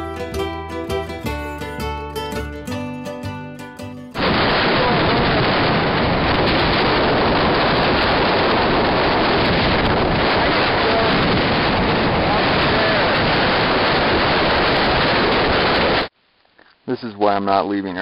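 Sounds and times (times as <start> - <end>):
plucked-string music: 0.0 - 4.2
wind buffeting microphone: 4.2 - 16.1.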